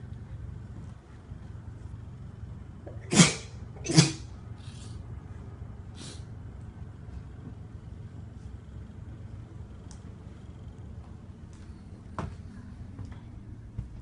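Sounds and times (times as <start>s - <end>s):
low steady hum: 0.0s - 14.0s
person sneezing: 2.9s - 5.0s
person sniffing: 3.1s - 5.0s, 5.9s - 6.3s.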